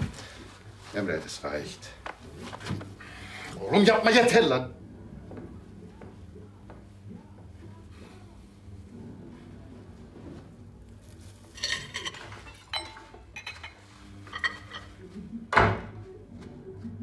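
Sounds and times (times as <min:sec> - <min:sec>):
dishes and cutlery clinking: 0:11.5 - 0:15.1
dishes clattering: 0:11.5 - 0:15.9.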